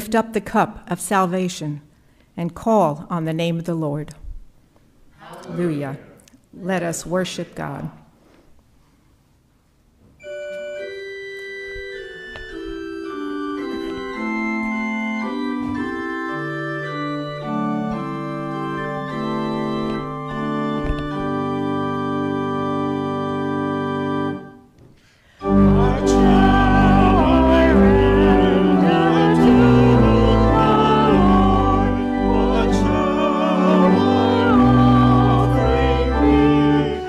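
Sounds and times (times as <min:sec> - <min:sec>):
church organ chords: 0:10.2 - 0:24.7, 0:25.3 - 0:37.0
voices singing a hymn: 0:25.4 - 0:37.0.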